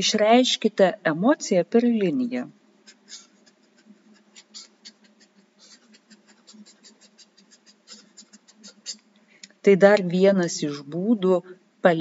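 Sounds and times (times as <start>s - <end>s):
marker scratching on paper: 2.8s - 9.0s.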